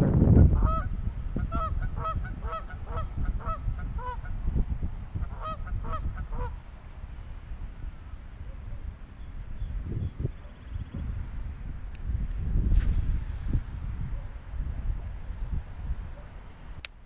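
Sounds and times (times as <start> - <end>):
wind rumble on microphone: 0.0 - 16.9
geese honking: 0.6 - 4.3, 5.2 - 6.6.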